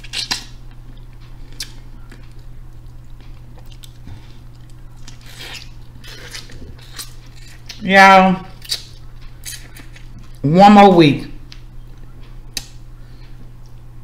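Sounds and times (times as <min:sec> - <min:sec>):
chewing and wet mouth sounds: 0:00.0 - 0:07.8, 0:08.5 - 0:10.4
low electrical hum: 0:00.0 - 0:14.0.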